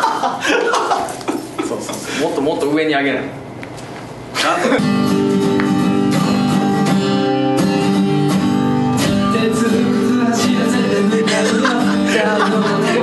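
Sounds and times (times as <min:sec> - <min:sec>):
strummed acoustic guitar music: 0:04.7 - 0:13.0.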